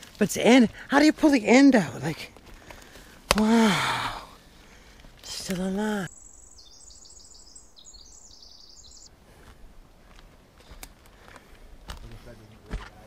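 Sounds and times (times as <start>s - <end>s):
footsteps on forest floor: 0.0s - 6.1s, 9.2s - 13.0s
songbird singing: 3.4s - 9.2s.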